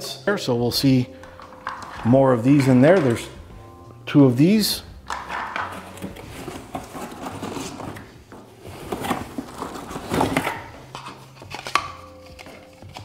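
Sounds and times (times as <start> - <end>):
cardboard rustling and scraping: 5.3 - 11.8.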